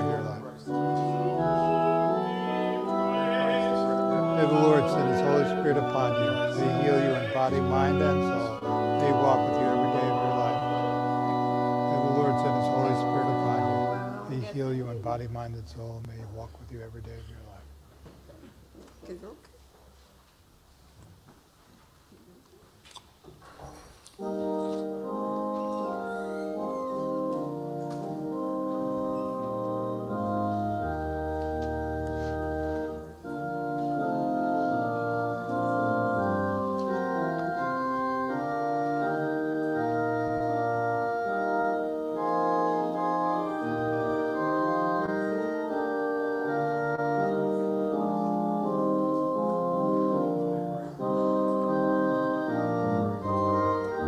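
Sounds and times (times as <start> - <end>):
organ playing sustained chords: 0.0 - 17.9, 24.1 - 54.0.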